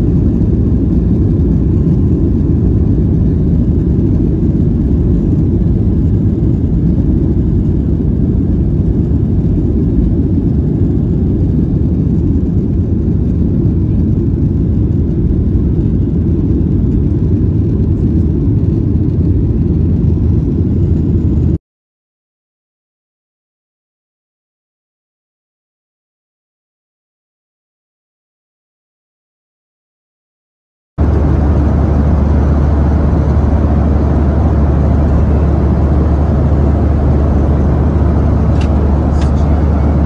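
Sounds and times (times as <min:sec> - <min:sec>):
jet engines roaring: 0:00.0 - 0:21.5, 0:31.0 - 0:40.0.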